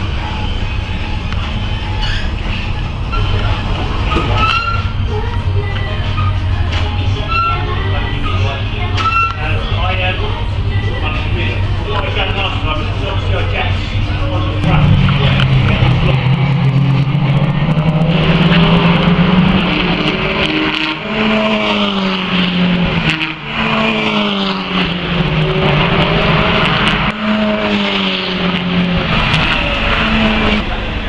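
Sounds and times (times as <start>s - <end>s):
race car engine changing gear: 10.8s - 31.0s.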